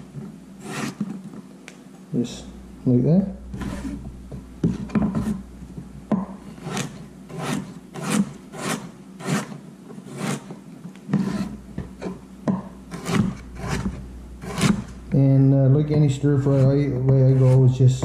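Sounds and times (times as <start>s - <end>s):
knife slicing carrot on board: 12.9s - 15.0s.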